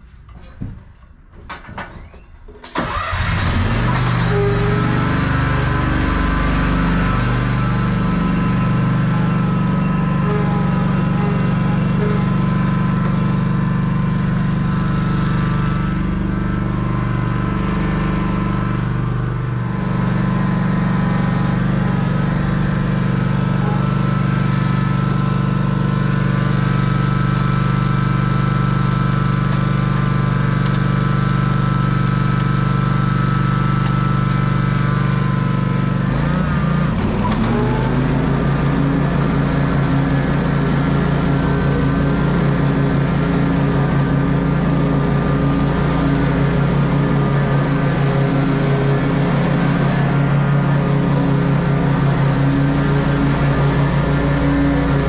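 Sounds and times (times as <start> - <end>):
lawn mower engine running: 2.0 - 55.0.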